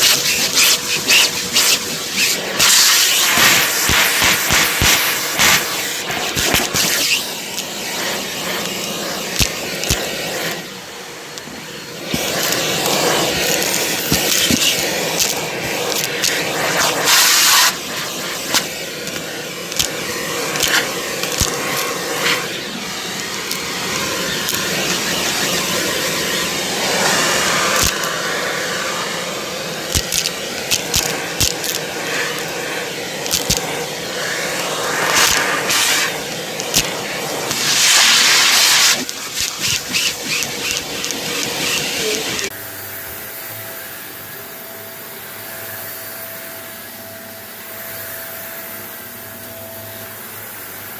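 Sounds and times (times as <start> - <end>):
debris clicking in vacuum: 0.0 - 10.6, 12.1 - 17.8, 18.4 - 22.5, 27.7 - 28.2, 29.8 - 32.6, 33.2 - 33.7, 34.5 - 42.5
vacuum cleaner running: 0.0 - 50.9.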